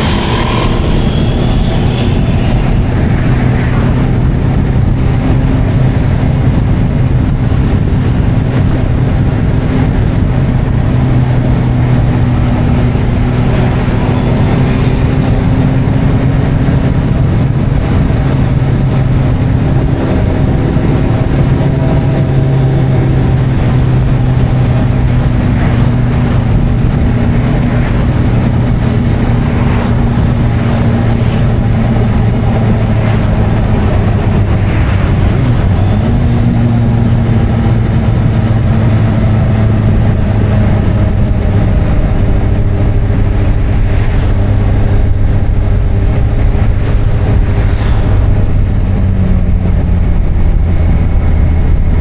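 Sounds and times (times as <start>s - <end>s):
motorcycle engine cruising: 0.0s - 52.0s
rush of riding noise: 0.0s - 52.0s.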